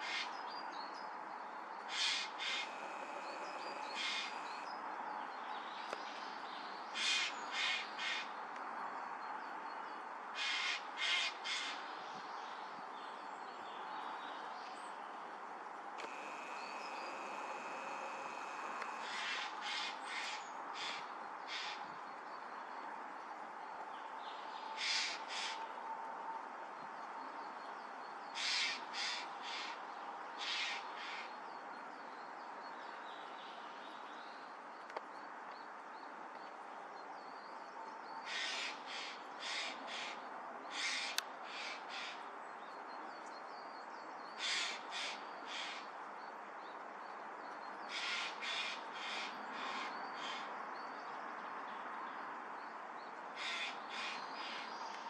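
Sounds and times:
steady background hiss: 1.8s - 4.7s, 10.4s - 22.2s
crows cawing: 1.9s - 4.6s, 7.0s - 8.3s, 10.4s - 11.8s, 16.1s - 21.8s, 24.8s - 25.6s, 28.4s - 29.8s, 38.3s - 42.2s, 44.4s - 45.9s, 47.9s - 50.5s, 53.4s - 54.7s.

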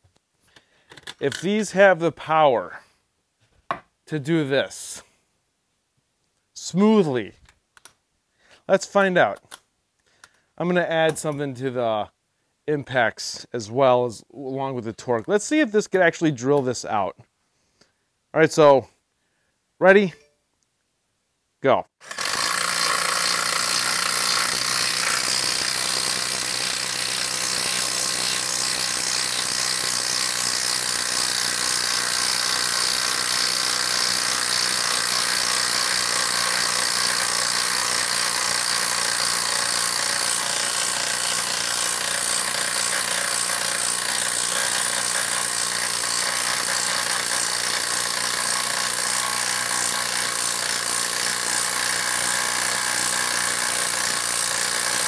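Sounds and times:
impact driver hammering into wood: 22.0s - 55.0s.

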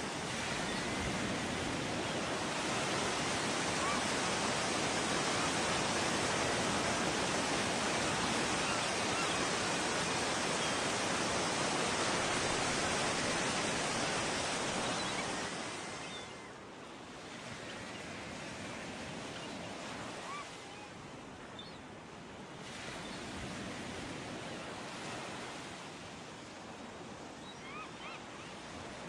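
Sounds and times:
heavy surf breaking on beach: 0.0s - 17.2s.

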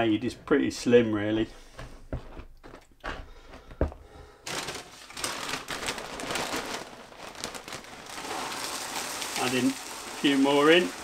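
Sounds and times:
plastic cereal bag crinkling: 4.4s - 11.0s.

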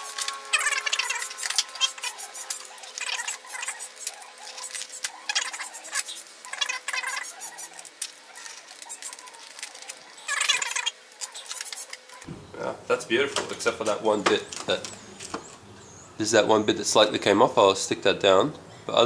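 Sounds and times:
tape peeling off plastic: 0.0s - 11.9s.

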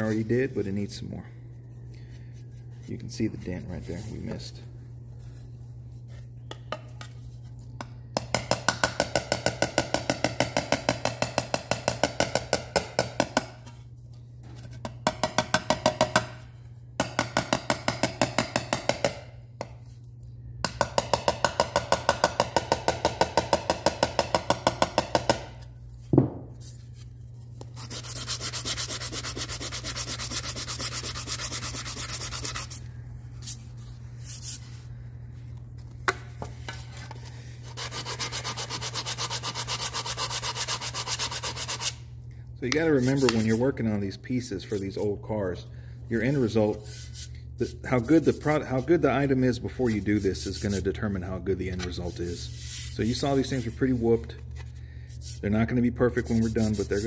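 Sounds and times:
sanding block sanding: 27.8s - 32.8s, 37.7s - 42.0s, 43.0s - 43.6s, 52.1s - 54.0s, 56.3s - 57.0s.

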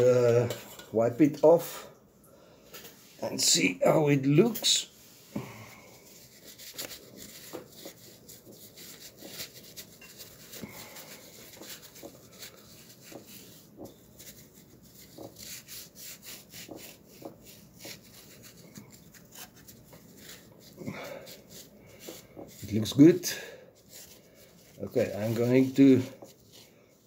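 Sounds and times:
paper towel wiping metal: 6.0s - 27.0s.

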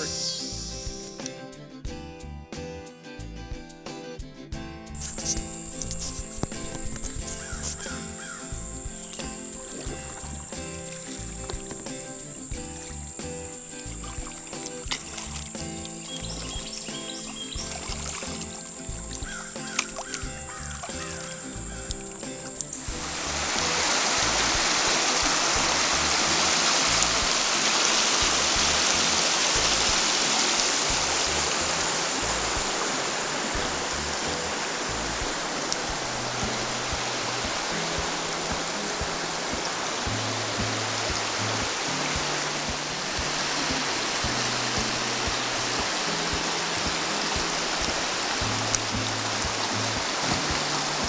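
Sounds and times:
river rushing over rocks: 0.0s - 0.9s, 13.6s - 51.0s
music with low bass line: 0.0s - 51.0s.

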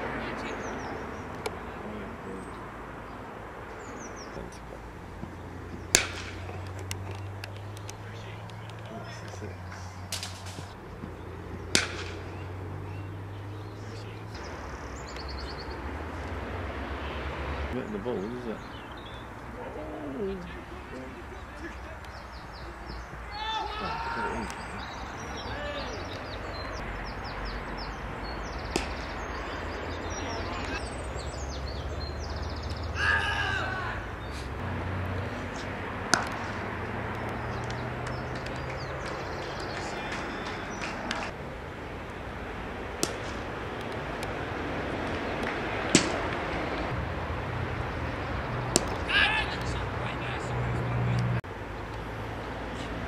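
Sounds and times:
low outdoor background: 0.0s - 53.0s
sharp crack: 4.6s - 12.6s, 28.6s - 29.6s, 35.4s - 41.4s, 42.8s - 47.0s, 48.6s - 49.8s.

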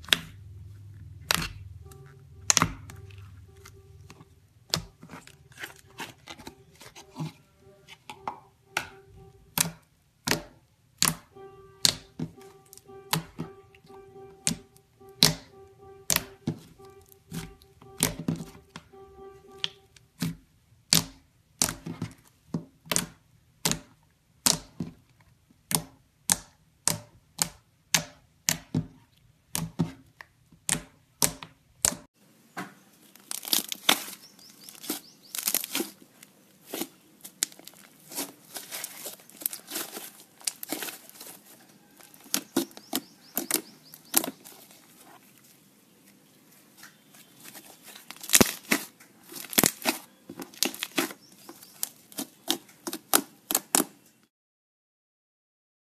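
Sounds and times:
slime crackly popping: 33.1s - 36.0s, 36.7s - 44.7s, 47.3s - 54.0s.

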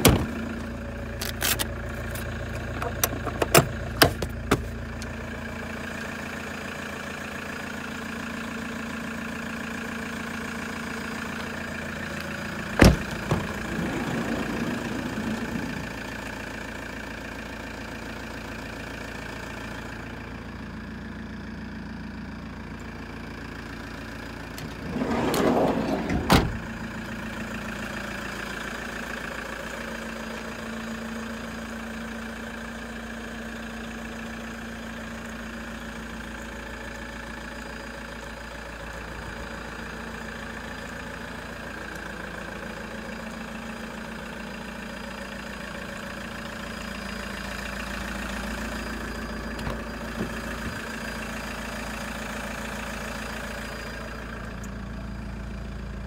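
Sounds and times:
van engine idling: 0.0s - 56.0s
engine knocks: 2.1s - 5.2s, 12.2s - 16.5s, 49.4s - 51.0s.

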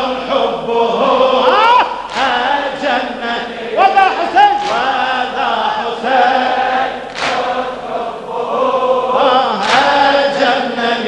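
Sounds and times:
man chanting into microphone: 0.0s - 6.2s
chorus of men chanting: 0.0s - 11.0s
sharp slaps: 2.0s - 2.4s, 4.6s - 5.0s, 7.1s - 7.6s, 9.6s - 10.0s.

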